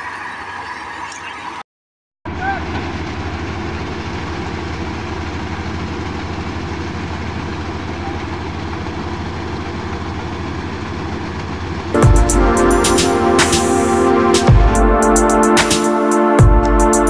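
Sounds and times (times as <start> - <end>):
combine harvester engine running: 2.3 - 15.9.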